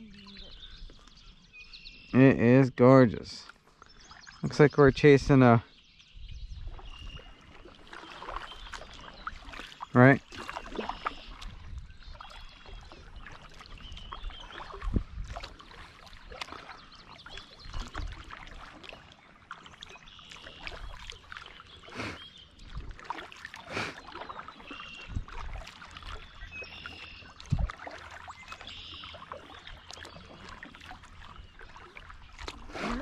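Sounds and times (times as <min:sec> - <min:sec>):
kayak paddle strokes: 0:06.7 - 0:33.0
water dripping: 0:07.6 - 0:21.6.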